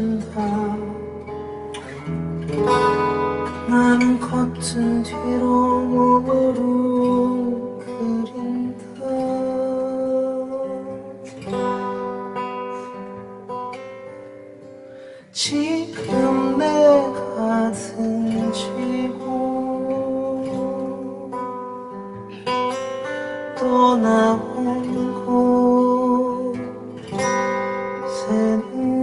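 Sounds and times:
man singing: 0.0 - 1.4, 3.4 - 11.5, 15.2 - 21.6, 23.5 - 27.0, 28.0 - 29.0
acoustic guitar strumming: 0.0 - 29.0.

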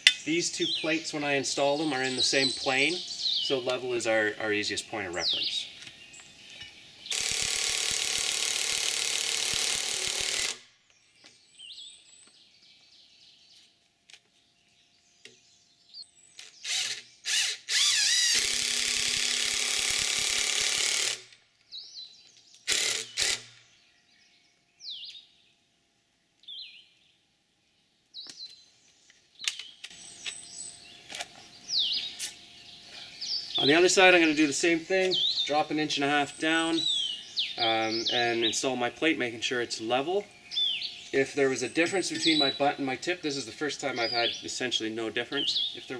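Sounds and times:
cordless power driver driving screws: 7.1 - 10.6, 16.4 - 21.4, 22.7 - 23.6.

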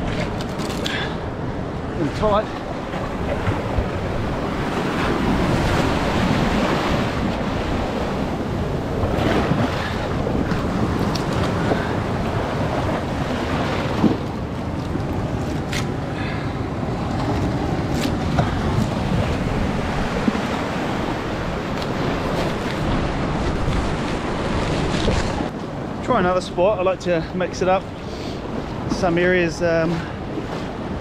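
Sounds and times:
surf washing against rock: 0.0 - 16.2, 16.8 - 25.6
wind on microphone: 0.0 - 26.0.

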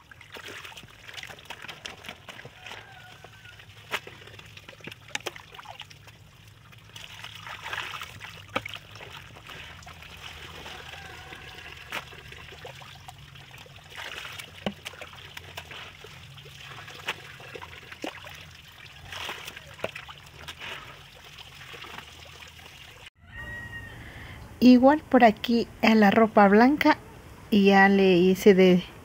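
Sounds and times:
water trickling and splashing: 0.0 - 23.2.

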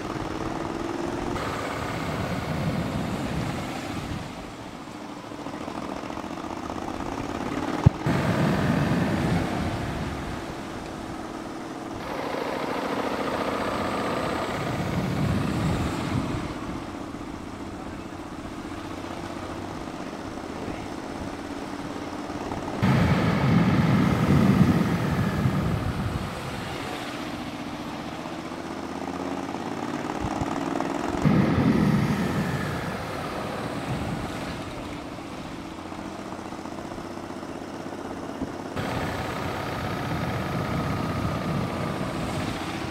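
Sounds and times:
wind noise: 0.0 - 4.8, 7.1 - 12.2, 13.2 - 18.8, 22.5 - 28.2, 30.1 - 35.9, 38.4 - 42.9
vehicle engine running: 0.0 - 42.9.

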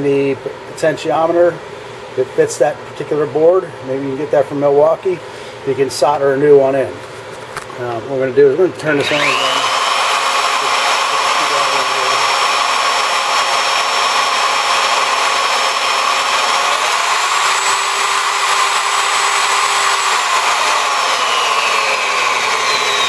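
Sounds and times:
drill press motor whining: 8.8 - 23.0.

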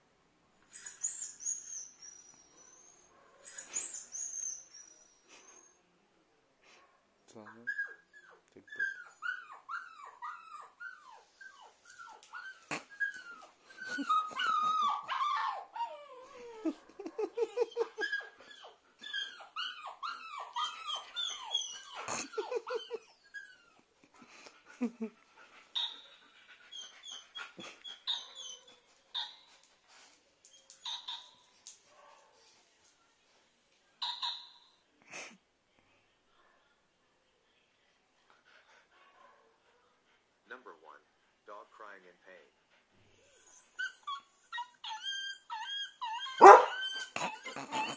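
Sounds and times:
dog whimpering and yelping: 0.7 - 5.8, 7.4 - 23.9, 24.8 - 31.5, 34.0 - 34.7, 43.1 - 47.9.

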